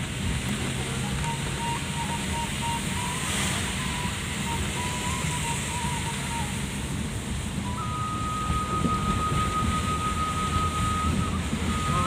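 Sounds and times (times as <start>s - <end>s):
car engine and tyres on wet road: 0.0s - 12.0s
rain on windscreen: 0.0s - 12.0s
faint wavering tone: 7.6s - 12.0s.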